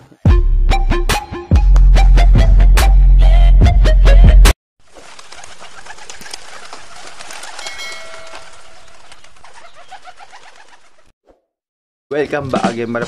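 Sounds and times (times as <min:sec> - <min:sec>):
rustling: 0:04.8 - 0:10.9
pigeons cooing: 0:05.2 - 0:11.1.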